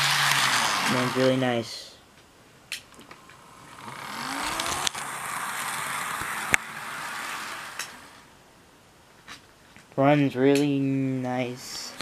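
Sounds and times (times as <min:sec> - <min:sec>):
model train whirring on track: 0:00.0 - 0:01.4, 0:03.5 - 0:08.3
sharp clicks: 0:04.4 - 0:05.1.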